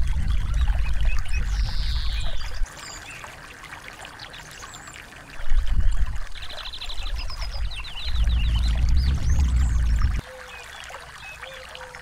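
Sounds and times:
stream water trickling: 0:00.0 - 0:12.0
small songbirds chirping: 0:00.2 - 0:03.3, 0:06.4 - 0:11.6
deep low rumble: 0:07.5 - 0:10.2.

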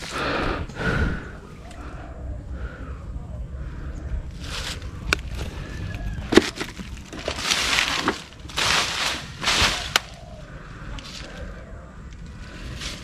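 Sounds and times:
branches and leaves rustling: 0:00.0 - 0:00.9, 0:04.3 - 0:13.0
twigs snapping: 0:04.3 - 0:10.2.

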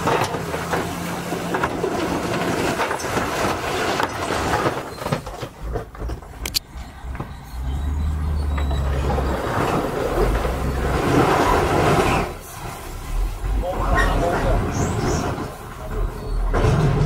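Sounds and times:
rocks sliding and tumbling: 0:00.0 - 0:07.4, 0:08.4 - 0:17.0
dump truck engines running: 0:00.0 - 0:17.0.

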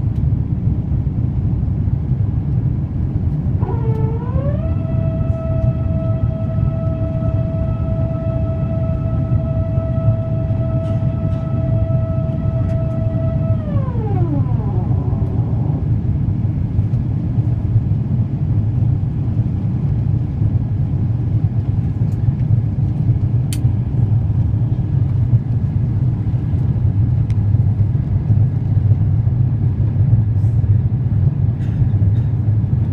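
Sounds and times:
airplane cabin roar: 0:00.0 - 0:32.9
high whine winding down: 0:03.6 - 0:17.1.

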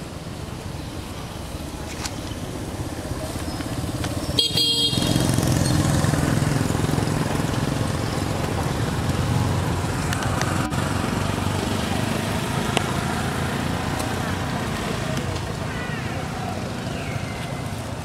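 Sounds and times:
motorcycle engine running: 0:02.6 - 0:17.7
motorcycle horn toot: 0:04.4 - 0:05.3.

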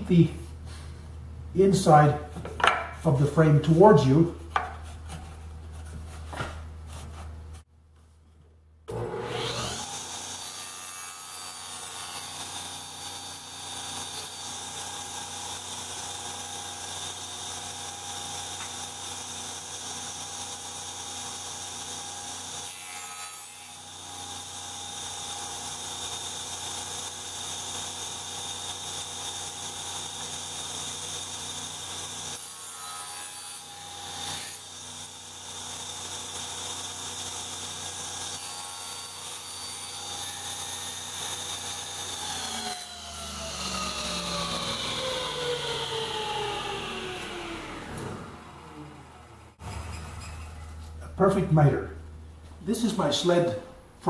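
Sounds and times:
table saw cutting wood: 0:08.9 - 0:51.0.

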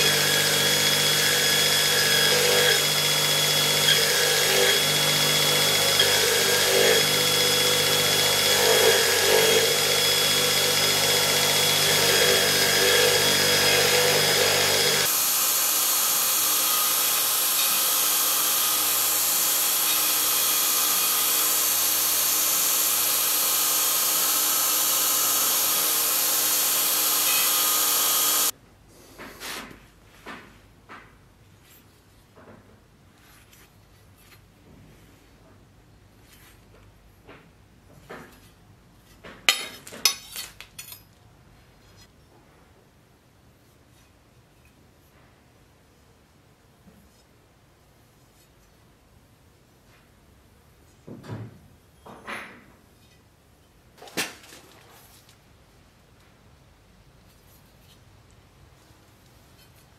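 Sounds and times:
electric power tool running: 0:00.0 - 0:28.5.

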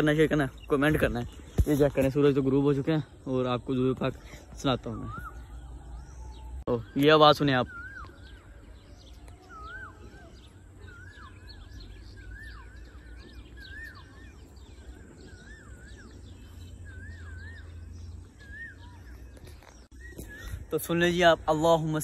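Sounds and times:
faint bird chirps: 0:00.0 - 0:22.0
bird whistling wavering phrase: 0:04.9 - 0:19.3.

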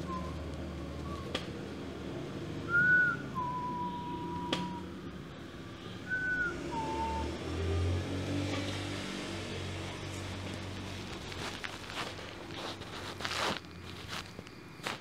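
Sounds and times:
two-note whistle: 0:02.7 - 0:05.0, 0:06.1 - 0:07.4.

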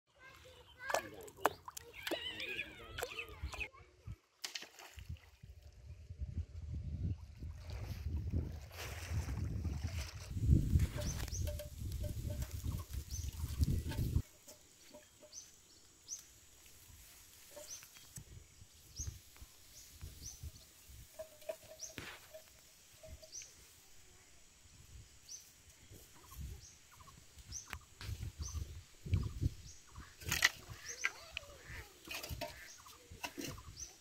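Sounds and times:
wind rumbling on microphone: 0:05.0 - 0:14.2, 0:25.9 - 0:31.6.

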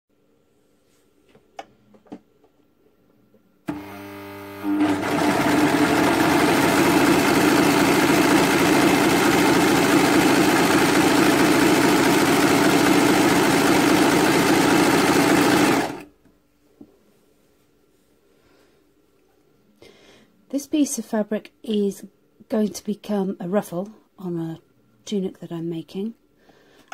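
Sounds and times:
overlocker stitching: 0:03.7 - 0:16.1.

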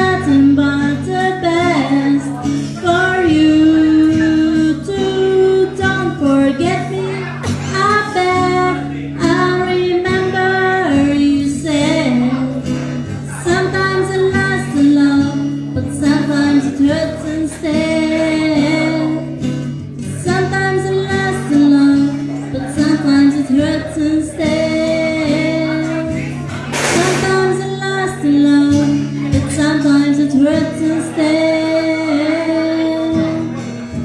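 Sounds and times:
acoustic guitar: 0:00.0 - 0:34.0
woman singing a slow ballad: 0:00.0 - 0:34.0
brief hiss: 0:26.7 - 0:27.4.

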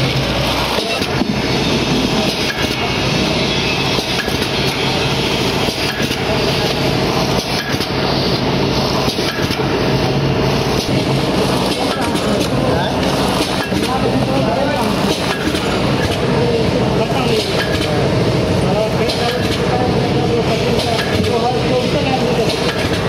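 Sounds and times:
packing machine humming: 0:00.0 - 0:23.0
machine clicks and clanks: 0:00.1 - 0:01.4, 0:02.1 - 0:02.9, 0:03.9 - 0:05.0, 0:05.6 - 0:06.4, 0:07.3 - 0:08.0, 0:09.0 - 0:09.8, 0:10.7 - 0:16.4, 0:17.1 - 0:18.2, 0:18.8 - 0:19.8, 0:20.4 - 0:23.0.

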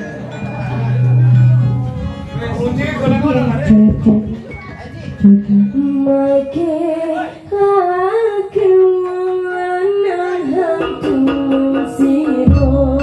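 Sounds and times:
high wavering melody: 0:00.0 - 0:07.2.

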